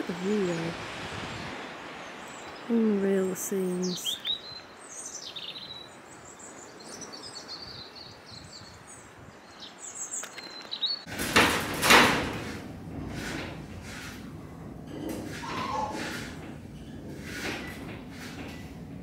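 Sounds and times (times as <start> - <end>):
faint outdoor hiss: 0.0 - 15.1
small birds chirping: 0.1 - 11.1.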